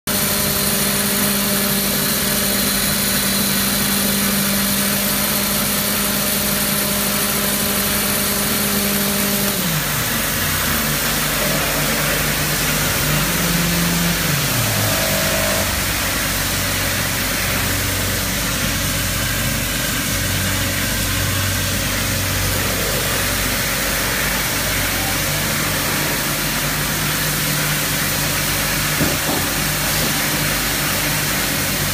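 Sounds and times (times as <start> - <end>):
motor hum sliding down in pitch: 0.1 - 31.9
machinery mechanical din: 7.5 - 31.9.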